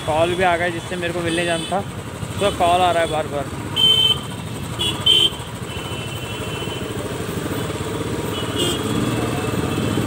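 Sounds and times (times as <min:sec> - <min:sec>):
motorcycle engine running: 0:00.0 - 0:10.0
horn honks: 0:03.0 - 0:07.0, 0:08.3 - 0:10.0.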